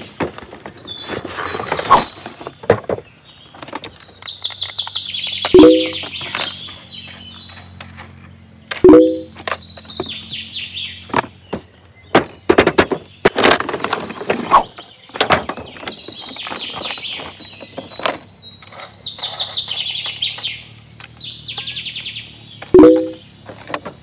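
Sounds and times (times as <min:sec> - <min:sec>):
birds chirping: 0:00.0 - 0:24.0
bird trill: 0:03.4 - 0:07.9, 0:08.8 - 0:11.1, 0:13.9 - 0:23.5.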